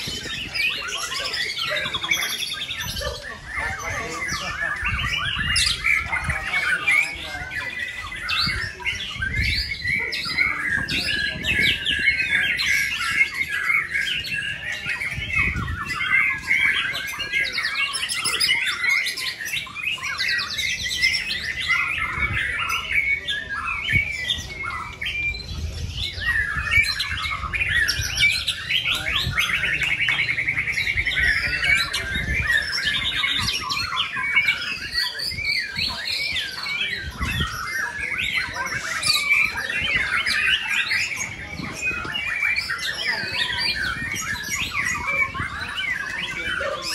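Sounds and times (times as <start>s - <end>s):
birds singing whistled phrases: 0.0s - 46.9s.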